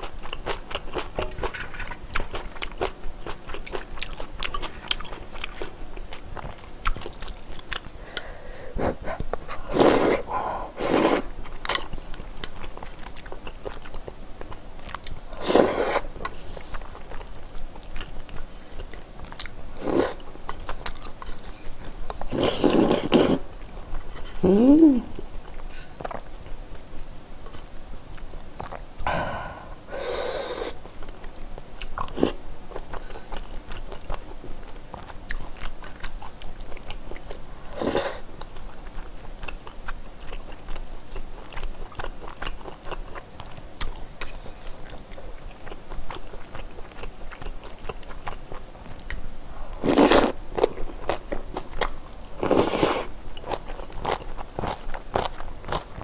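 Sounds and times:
person chewing and crunching: 0:00.0 - 0:08.2, 0:09.1 - 0:27.0, 0:28.1 - 0:29.6, 0:30.8 - 0:56.0
slurping noodle soup: 0:08.8 - 0:11.4, 0:15.4 - 0:16.8, 0:19.8 - 0:20.2, 0:22.3 - 0:23.4, 0:29.1 - 0:30.8, 0:37.7 - 0:38.3, 0:49.8 - 0:50.4, 0:52.4 - 0:53.1.

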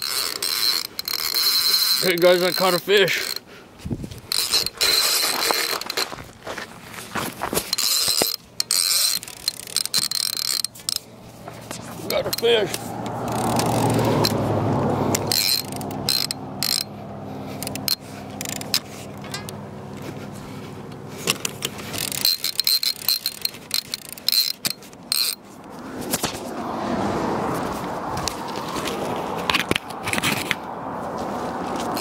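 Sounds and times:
fishing reel gears whirring: 0:00.0 - 0:03.5, 0:04.1 - 0:06.2, 0:07.5 - 0:25.6
sharp clicks and knocks: 0:07.2 - 0:16.9, 0:17.6 - 0:20.2, 0:20.8 - 0:26.5.

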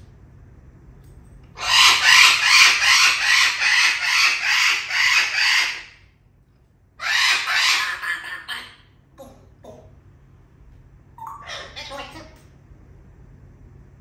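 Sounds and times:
parrot squawking: 0:01.6 - 0:06.0, 0:07.0 - 0:09.9, 0:11.2 - 0:12.4.

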